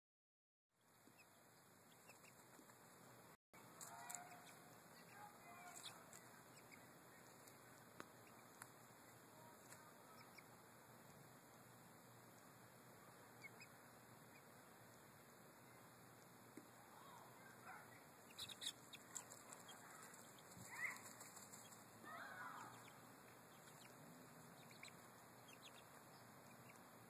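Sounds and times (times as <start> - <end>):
young chickens peeping: 0.8 - 2.9, 3.6 - 10.6, 12.3 - 27.0
steady low hiss: 0.8 - 27.0.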